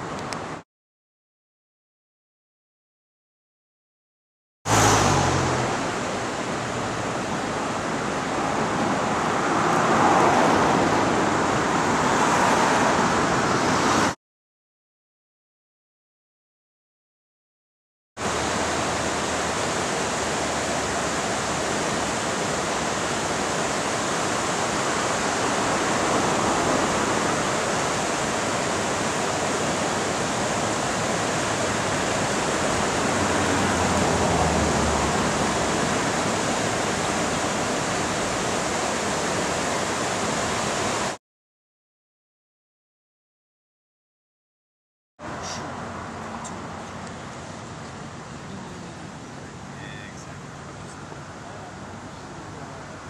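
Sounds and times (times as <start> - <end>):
river water rushing over rocks: 4.7 - 14.0, 18.2 - 41.2, 45.2 - 53.0.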